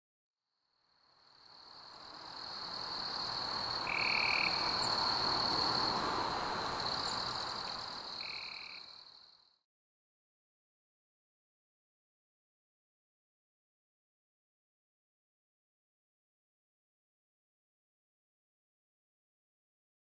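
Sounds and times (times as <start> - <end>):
night chorus hiss: 0.8 - 9.5
high-pitched insect drone: 1.3 - 9.3.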